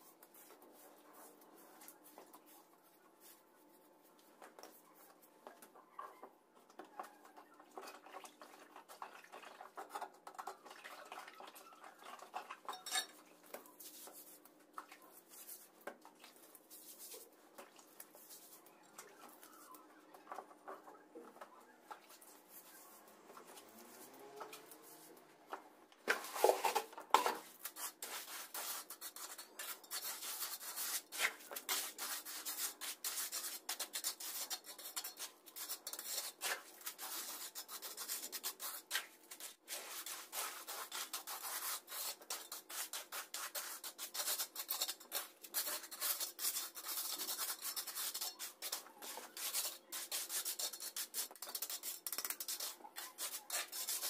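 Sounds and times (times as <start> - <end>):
trowel scraping wet mix: 27.5 - 54.0.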